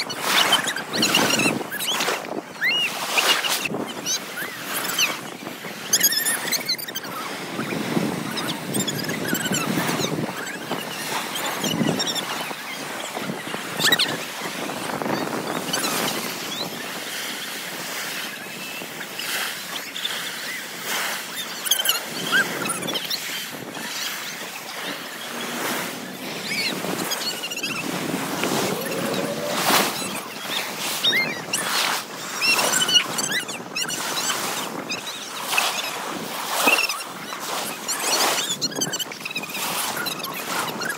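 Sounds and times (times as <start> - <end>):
sea waves breaking on beach: 0.0 - 40.9
wind buffeting microphone: 3.7 - 19.1, 21.9 - 35.0.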